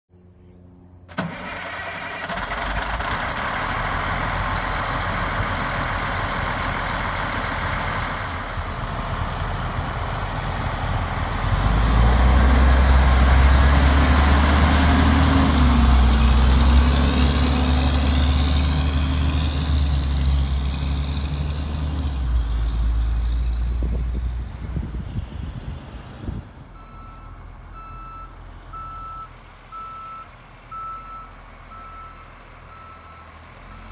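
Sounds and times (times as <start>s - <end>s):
reversing alarm beeping: 0.1s - 1.2s, 26.8s - 33.9s
diesel truck engine: 0.1s - 33.9s.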